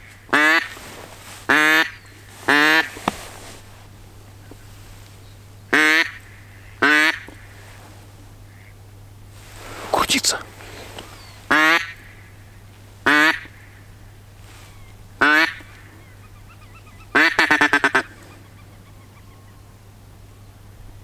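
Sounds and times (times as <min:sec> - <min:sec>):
duck call quacks: 0:00.3 - 0:00.7, 0:01.5 - 0:03.0, 0:05.7 - 0:07.4, 0:11.5 - 0:12.2, 0:13.0 - 0:13.8, 0:15.2 - 0:15.8, 0:17.1 - 0:18.2.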